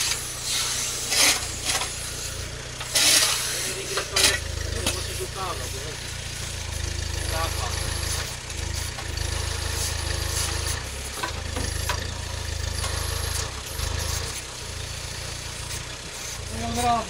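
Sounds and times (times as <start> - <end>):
backhoe bucket scraping soil: 0.0 - 5.4, 7.2 - 12.2
tractor engine running: 0.0 - 17.0.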